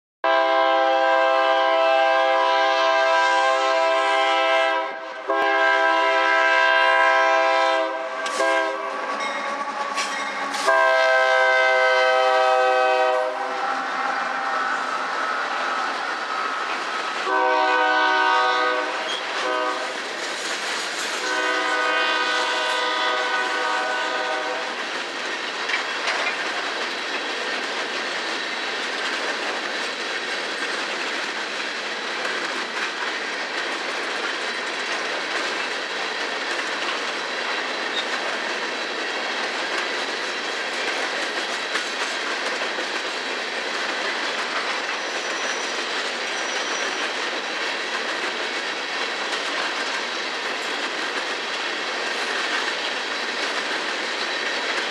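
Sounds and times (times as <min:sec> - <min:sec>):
locomotive air horn blasts: 0:00.2 - 0:14.6, 0:17.2 - 0:20.0, 0:21.2 - 0:24.7
train wheels rolling past: 0:00.3 - 0:54.9
wheels clicking over rail joints: 0:08.2 - 0:11.4, 0:19.0 - 0:54.9.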